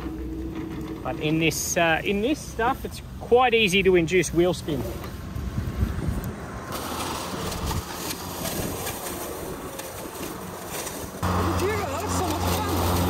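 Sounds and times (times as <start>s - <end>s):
electric lawn mower running: 0.0s - 1.4s, 6.5s - 13.0s.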